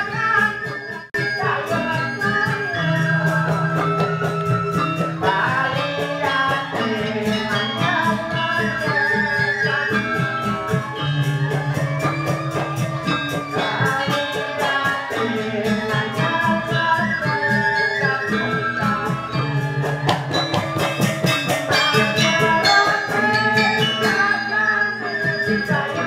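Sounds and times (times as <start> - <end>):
metallophones ringing: 0.0 - 26.0.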